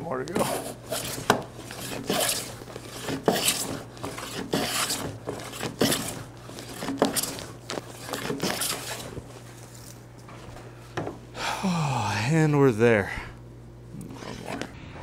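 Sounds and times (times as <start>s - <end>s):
hand plane shearing wood: 0.4s - 9.2s.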